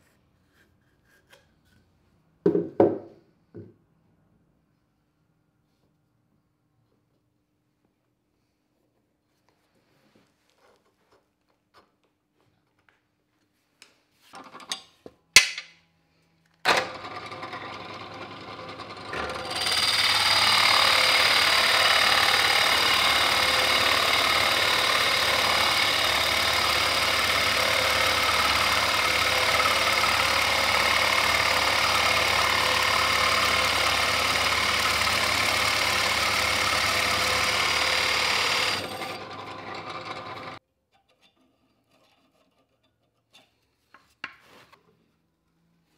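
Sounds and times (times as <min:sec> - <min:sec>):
drill press motor hum: 0:16.7 - 0:40.6
drill bit boring into wood: 0:16.8 - 0:40.6.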